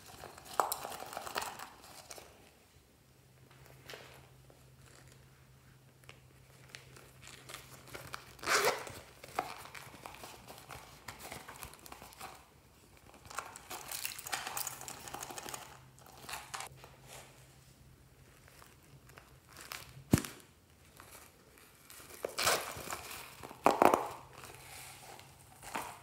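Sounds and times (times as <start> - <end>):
vinyl purse crinkling: 0.0 - 2.5, 3.5 - 5.3, 6.0 - 17.3, 18.2 - 26.0.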